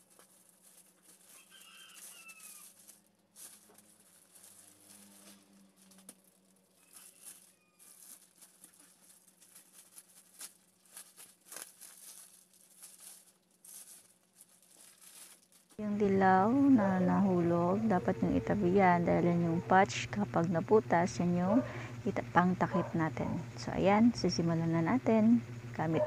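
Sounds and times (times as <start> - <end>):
plastic wrapping crinkling: 0.0 - 16.9
short falling animal call: 1.4 - 2.7.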